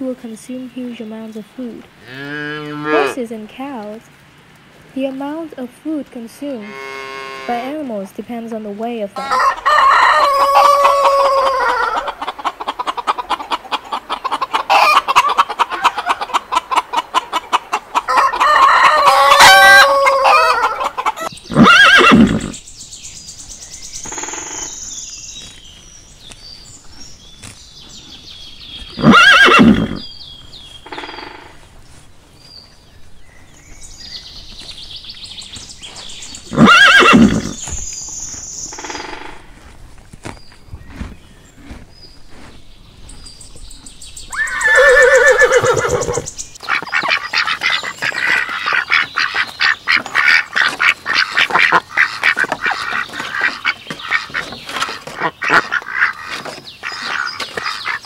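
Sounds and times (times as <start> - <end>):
rooster crowing: 9.2 - 12.2, 18.1 - 21.0
hens clucking: 9.2 - 22.6, 44.3 - 58.0
horse whinnying: 21.5 - 22.6, 29.0 - 30.0, 36.5 - 37.6, 44.3 - 46.3.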